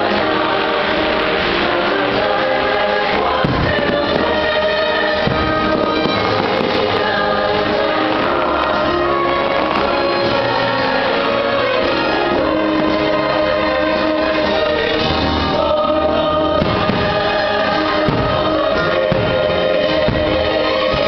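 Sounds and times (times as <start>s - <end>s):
choir singing held notes: 0.0s - 21.0s
orchestra: 0.0s - 21.0s.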